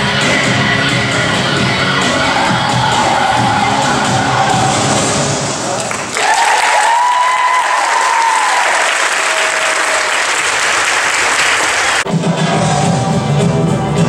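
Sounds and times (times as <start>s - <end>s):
audience applauding and cheering: 2.7s - 12.1s
person holding a long cheer: 5.8s - 10.9s.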